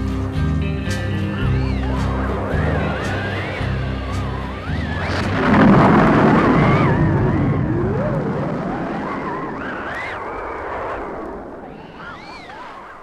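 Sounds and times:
rock and roll bass and guitar: 0.0 - 7.7
wavering sliding tone: 0.0 - 10.3
thunder crash sound effect: 1.4 - 9.1.

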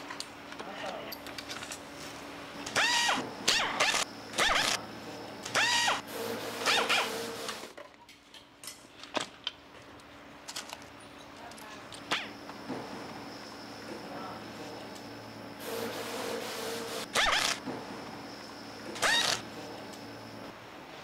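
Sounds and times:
pneumatic nut runner whining: 17.1 - 17.6, 19.0 - 19.4.

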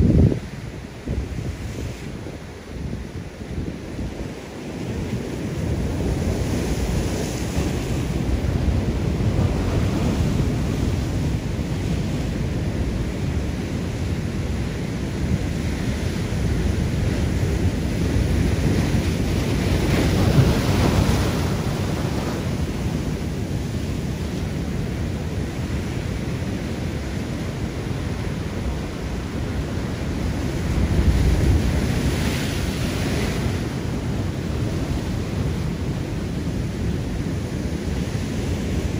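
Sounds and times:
sea surf on rocks: 0.0 - 38.9
wind buffeting microphone: 0.0 - 38.9.

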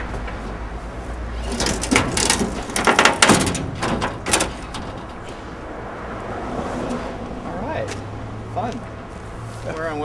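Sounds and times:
gear knocking and clattering: 1.5 - 5.3.

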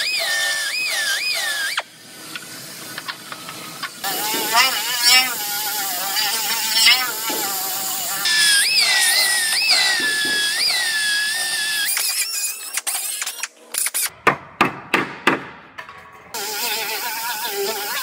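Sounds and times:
air sander whining on metal: 0.0 - 14.1.

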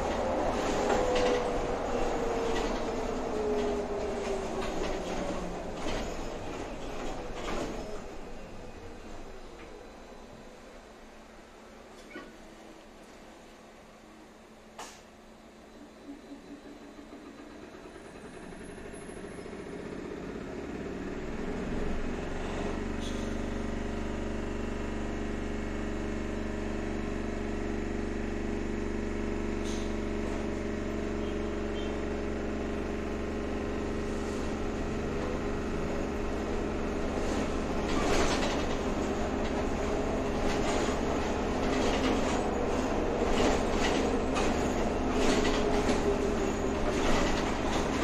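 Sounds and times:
tram rattling over track: 0.0 - 48.0
tram running hum: 0.0 - 48.0.

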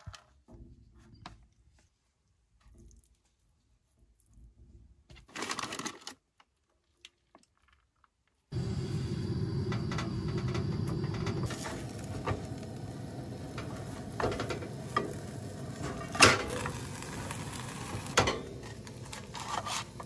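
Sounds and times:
food sizzling in a pan: 8.6 - 20.0.

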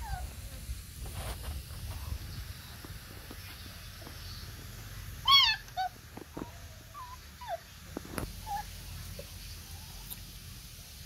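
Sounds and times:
puppy whimpering: 0.0 - 0.3, 5.2 - 7.7, 8.4 - 8.7
puppy squealing: 5.2 - 6.0, 6.9 - 7.7, 8.4 - 8.7.

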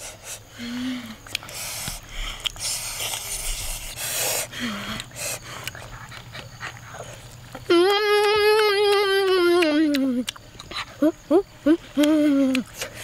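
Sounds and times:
boy saying a long oooh: 7.7 - 10.3, 11.0 - 12.7.

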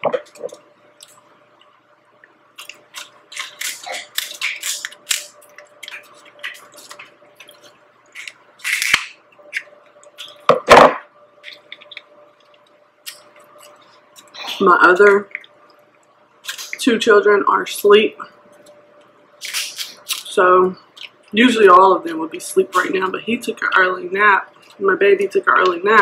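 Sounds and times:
scissors cracking crab shell: 2.6 - 10.4, 19.4 - 20.3.

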